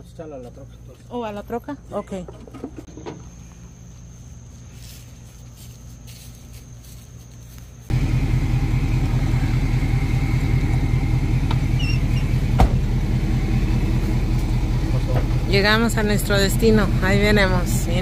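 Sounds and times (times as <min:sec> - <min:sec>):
truck engine idling: 0:07.9 - 0:18.0.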